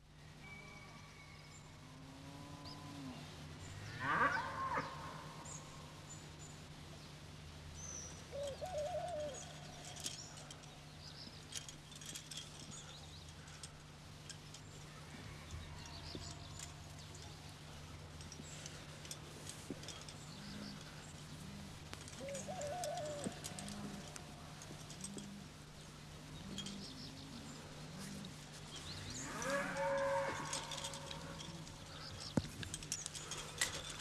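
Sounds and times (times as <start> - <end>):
steady low hum: 1.5 - 34.0
small birds chirping: 3.6 - 34.0
farm animal calls: 3.8 - 5.4, 19.9 - 25.6, 26.3 - 32.4.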